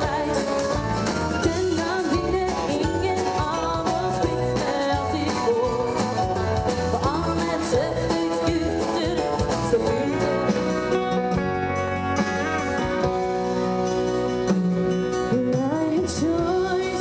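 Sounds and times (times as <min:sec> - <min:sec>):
woman singing: 0:00.0 - 0:11.0, 0:15.2 - 0:17.0
country band playing: 0:00.0 - 0:17.0.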